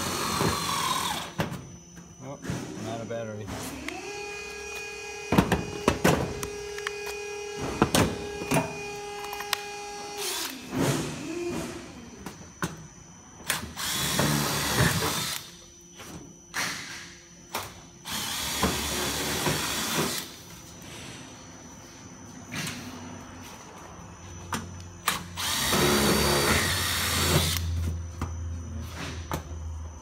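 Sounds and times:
cordless driver running screws: 25.4s - 27.7s.

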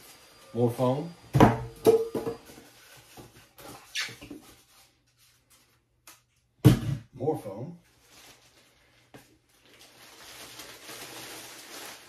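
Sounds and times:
brief squeak: 3.7s - 4.3s
packing foam handling noise: 7.9s - 12.0s.

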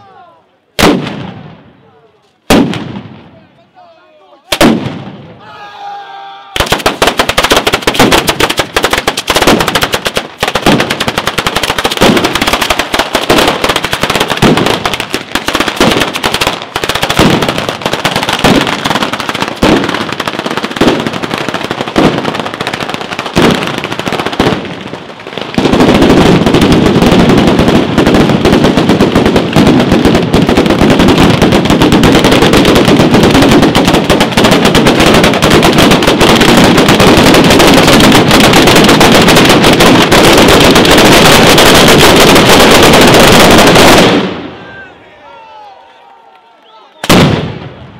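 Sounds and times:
chain of firecrackers going off: 6.6s - 44.2s.

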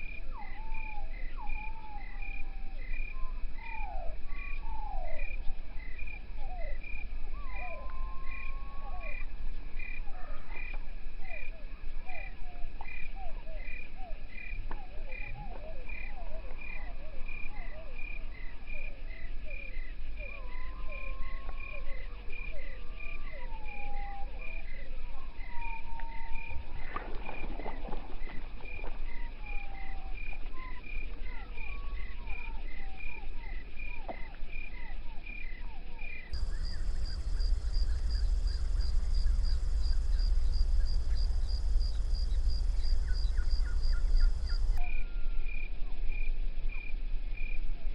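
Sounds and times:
insects chirping: 0.0s - 24.8s, 25.4s - 47.6s
frogs croaking: 0.0s - 45.6s
bird splashing into water: 26.9s - 29.0s
higher insect chirp: 34.6s - 47.6s
low rumble: 36.4s - 44.8s.

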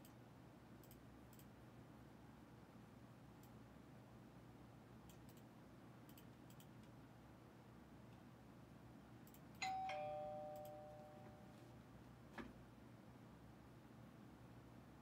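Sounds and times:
two-note ding-dong chime: 9.6s - 11.5s.

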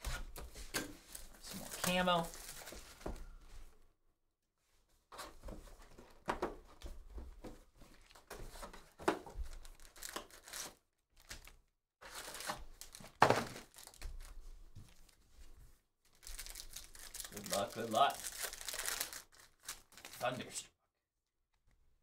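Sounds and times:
pack wrappers crinkling: 1.1s - 3.0s, 9.5s - 15.1s, 16.1s - 20.4s
cardboard tearing: 9.8s - 14.0s, 16.3s - 20.2s.

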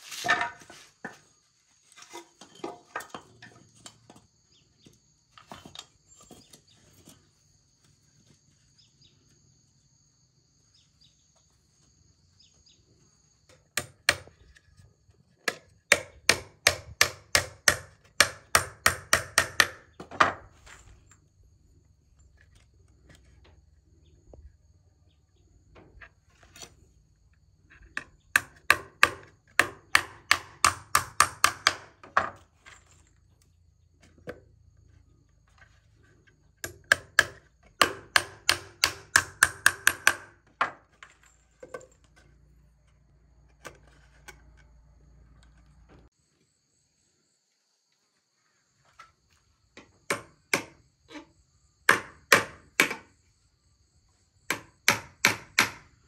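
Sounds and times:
hand tool striking wood: 13.5s - 14.5s, 15.4s - 20.5s, 28.0s - 32.4s, 36.6s - 40.8s, 49.8s - 50.8s, 51.9s - 53.1s, 54.5s - 55.8s.

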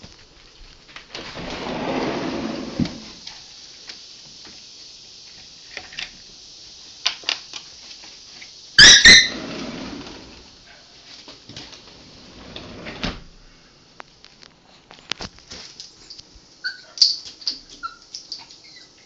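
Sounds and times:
small dog yipping: 8.8s - 9.3s, 16.6s - 19.0s.

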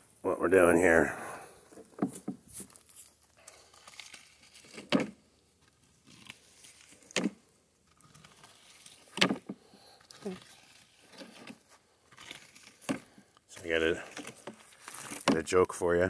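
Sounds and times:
rake scraping through leaves and dirt: 2.5s - 4.9s, 5.7s - 7.2s, 7.8s - 9.2s, 10.0s - 15.3s.

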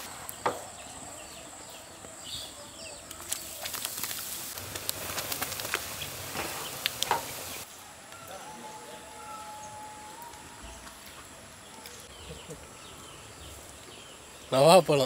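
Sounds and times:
prawns sizzling in oil: 3.2s - 7.7s.

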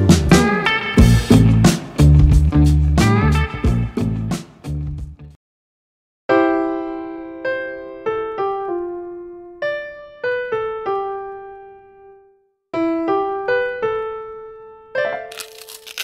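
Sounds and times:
rough scratchy crackling: 15.3s - 16.0s.

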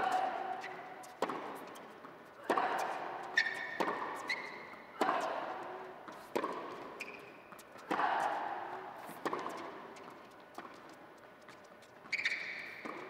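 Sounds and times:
shoes squeaking on court: 0.0s - 2.4s, 3.2s - 5.3s, 6.0s - 7.9s, 9.0s - 13.0s
tennis ball hits and bounces: 0.0s - 8.4s, 9.0s - 10.9s, 12.1s - 13.0s.

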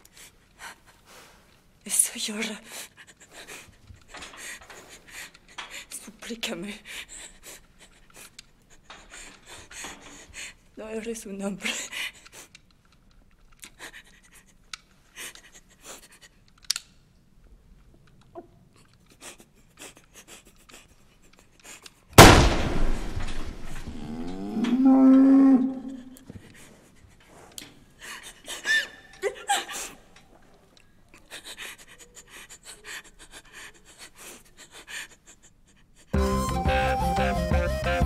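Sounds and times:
cow mooing: 23.8s - 26.1s.

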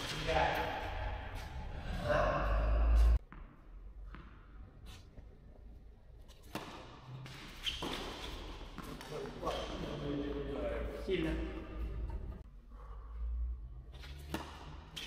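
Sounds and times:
tennis ball bouncing: 3.0s - 5.3s, 6.2s - 9.6s, 14.0s - 15.0s
racket hitting tennis ball: 6.4s - 10.0s, 14.0s - 15.0s.

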